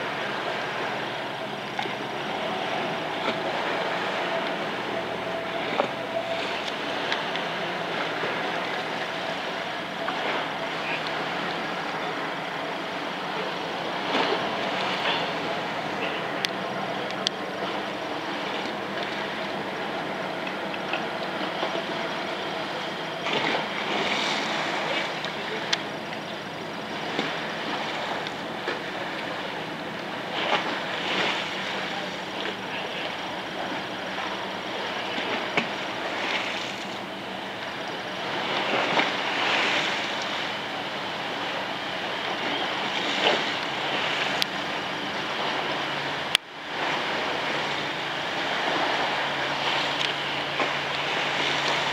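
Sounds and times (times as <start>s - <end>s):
boat diesel engines droning: 0.0s - 51.9s
water washing: 0.0s - 51.9s
wind: 0.0s - 51.9s.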